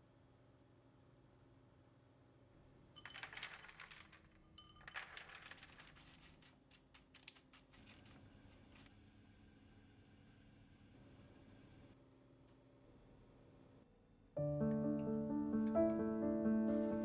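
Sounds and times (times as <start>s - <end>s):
nuts clattering onto baking sheet: 3.0s - 5.9s.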